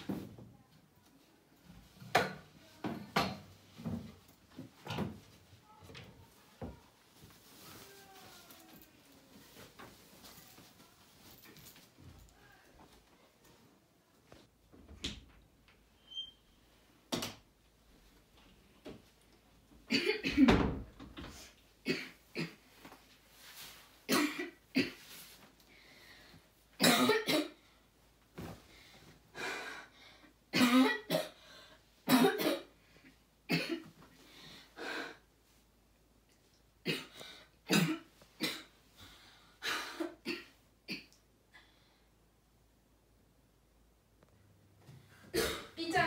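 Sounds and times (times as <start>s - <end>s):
boy coughing: 19.9s - 20.6s, 24.1s - 25.0s, 26.8s - 27.6s, 30.6s - 31.4s, 32.1s - 32.7s, 33.5s - 33.9s, 36.9s - 38.8s, 45.3s - 46.0s.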